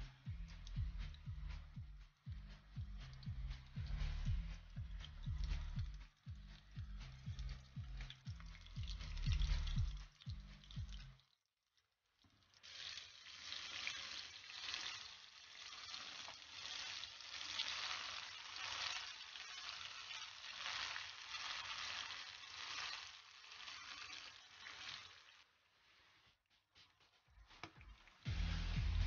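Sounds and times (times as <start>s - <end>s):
fish deep-frying in hot oil: 2.6s - 11.2s, 12.3s - 25.6s.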